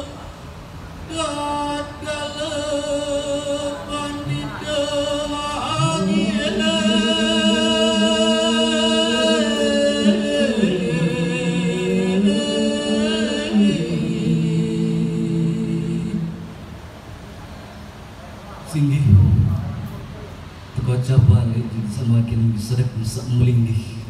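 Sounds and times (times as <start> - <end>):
man chanting unaccompanied: 1.0 - 16.4.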